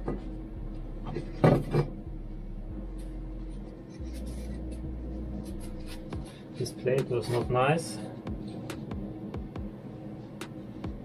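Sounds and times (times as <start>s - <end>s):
steady low hum: 0.0s - 11.0s
light rubbing and ticking: 3.5s - 6.3s.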